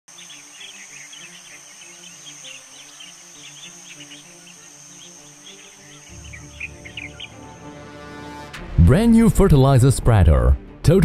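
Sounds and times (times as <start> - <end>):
short insect chirps: 0.1 - 7.7
high insect drone: 0.1 - 8.5
soft background music: 0.1 - 11.0.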